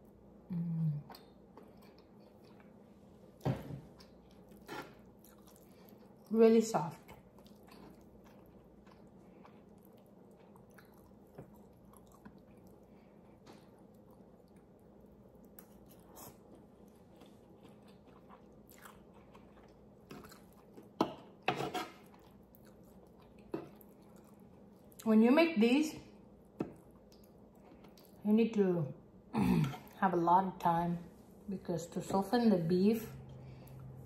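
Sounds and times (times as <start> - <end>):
person chewing: 1.1 - 6.3, 7.0 - 25.0, 26.8 - 28.2.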